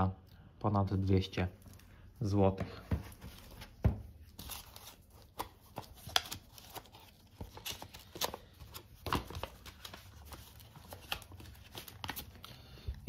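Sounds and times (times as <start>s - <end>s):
paper rustling: 2.9s - 12.7s.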